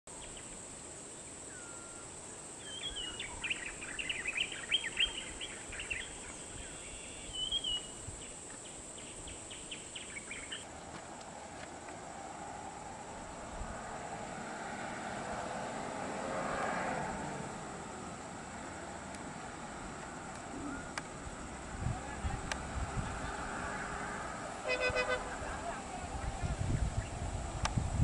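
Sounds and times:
high insect drone: 0.1s - 28.0s
faint vehicle engine hum: 1.4s - 28.0s
birds chirping and whistling: 1.5s - 8.4s, 9.0s - 10.6s.

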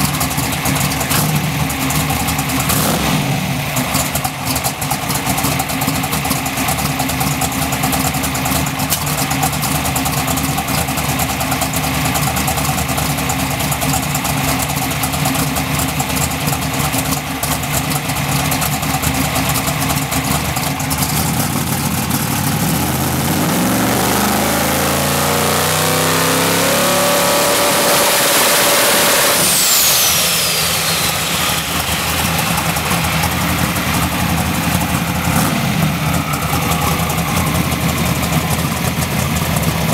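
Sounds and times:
drag racing engine revving: 0.0s - 39.9s
high turbo whistle: 23.4s - 38.8s.

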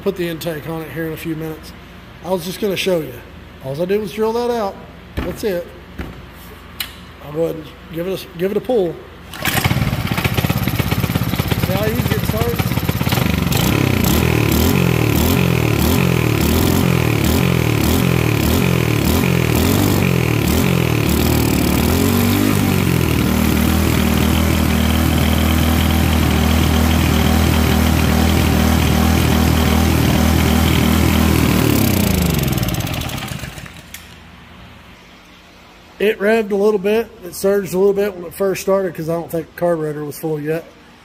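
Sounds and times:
small engine running: 9.4s - 34.0s.

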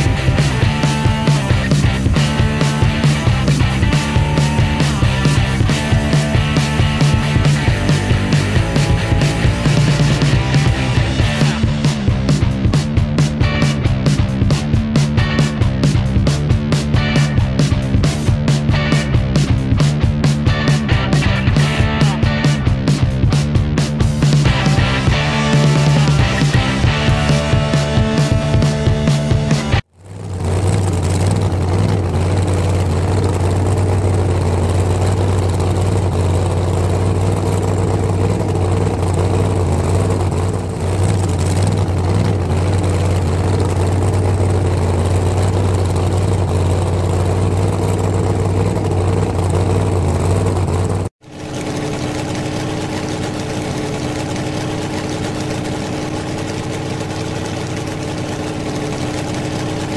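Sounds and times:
higher engine drone: 0.0s - 59.9s
truck engine idling: 0.0s - 59.9s.

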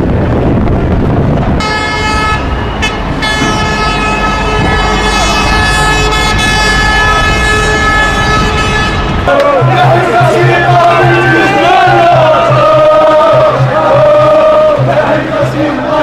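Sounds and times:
vehicle horn blaring: 1.6s - 12.4s.

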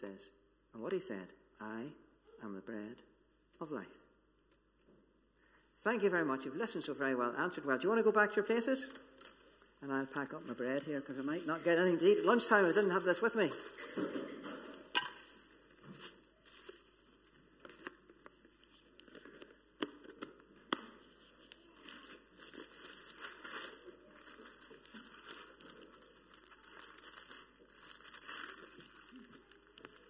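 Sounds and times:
packaging crinkling and rustling: 8.8s - 9.8s, 10.4s - 14.3s, 15.0s - 30.0s.

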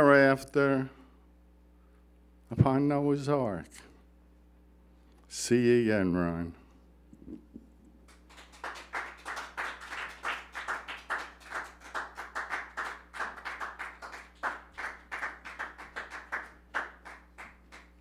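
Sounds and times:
audience applauding: 8.1s - 18.0s.

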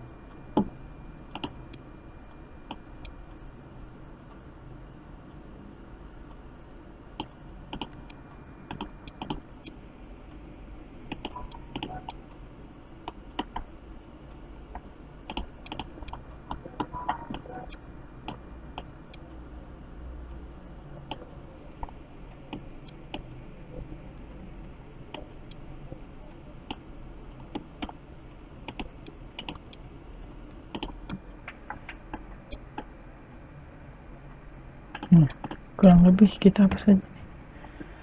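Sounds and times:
faint steady hum: 0.0s - 38.0s
computer keyboard typing: 1.3s - 1.8s, 7.2s - 9.7s, 11.1s - 12.2s, 13.0s - 13.7s, 15.3s - 19.2s, 28.7s - 29.8s, 30.7s - 32.9s, 34.9s - 35.7s
mouse clicks: 8.7s - 9.8s, 15.3s - 19.2s.

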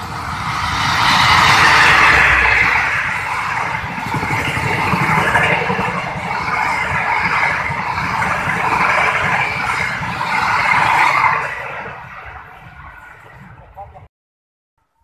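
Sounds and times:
train wheels rumbling on rails: 0.0s - 14.1s.

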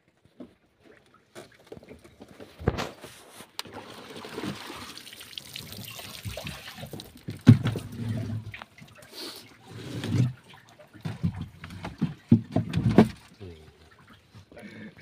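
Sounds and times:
water trickling and splashing: 0.8s - 15.0s
baskets knocking against boat: 11.1s - 13.2s.

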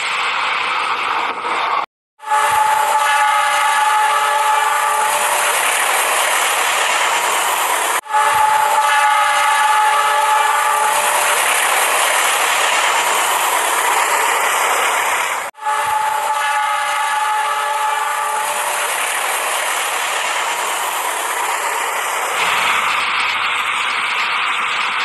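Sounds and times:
toy train horn tone: 2.2s - 5.4s, 8.0s - 11.3s, 15.6s - 18.8s.

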